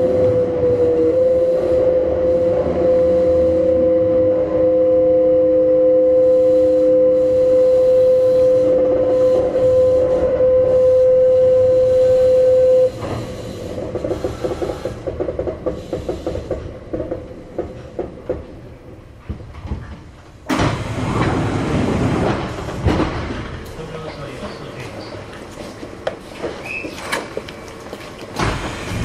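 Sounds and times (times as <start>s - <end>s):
electric train whine: 0.0s - 19.2s
wheels clicking on rails: 13.0s - 18.7s.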